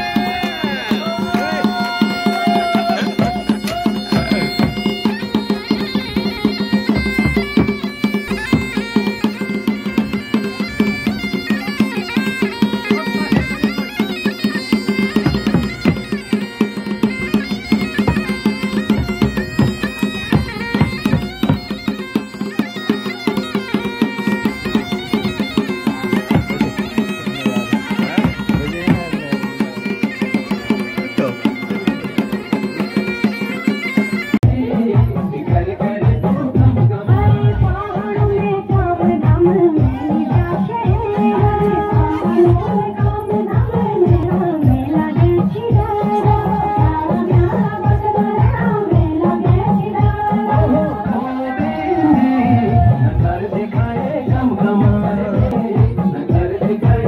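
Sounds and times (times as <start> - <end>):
bagpipe folk melody with drone: 0.0 - 34.9
drum beaten with stick: 0.0 - 57.0.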